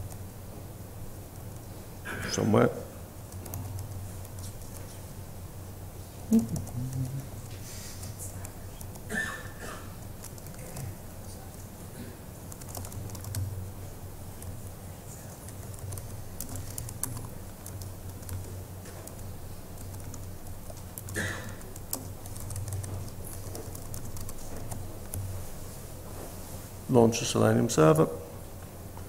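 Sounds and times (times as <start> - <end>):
steady low hum: 0.0 - 29.0
laptop keyboard typing: 3.3 - 5.1, 6.3 - 9.1, 9.9 - 11.6, 12.5 - 13.6, 14.2 - 25.4.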